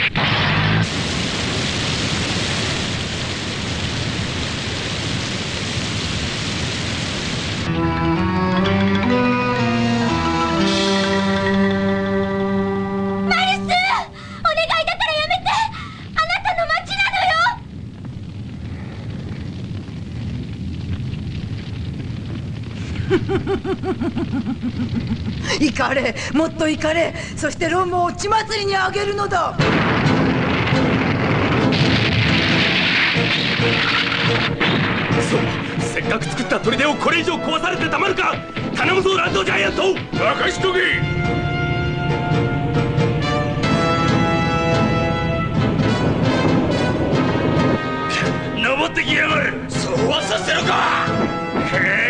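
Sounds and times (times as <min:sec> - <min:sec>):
fire burning with low rumble: 0:00.0 - 0:09.0, 0:13.2 - 0:52.0
water jets hissing: 0:00.9 - 0:07.7
music: 0:07.7 - 0:14.4, 0:29.6 - 0:52.0
person laughing: 0:22.9 - 0:25.8
low truck rumble: 0:40.0 - 0:48.6.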